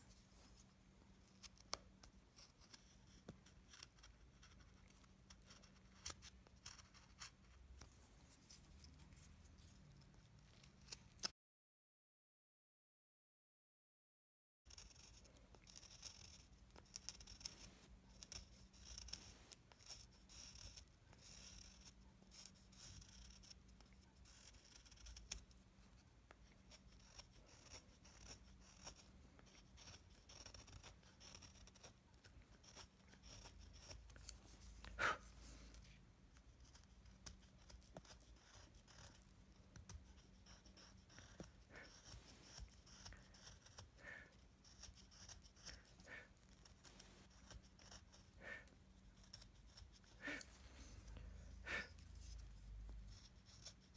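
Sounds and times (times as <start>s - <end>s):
chisel scraping wood: 26.7s - 31.9s, 36.7s - 48.3s.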